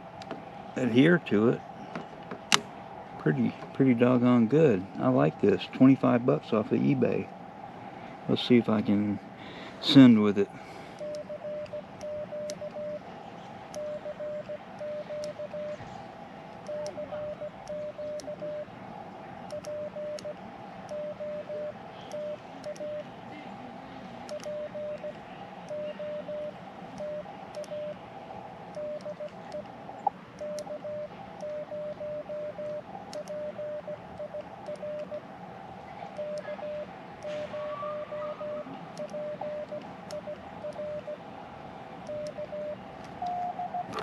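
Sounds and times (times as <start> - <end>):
morse code sidetone: 11.0 - 13.0, 13.7 - 15.8, 16.7 - 18.7, 19.5 - 23.1, 24.3 - 28.0, 28.7 - 29.7, 30.4 - 35.2, 36.1 - 41.2, 42.1 - 44.0.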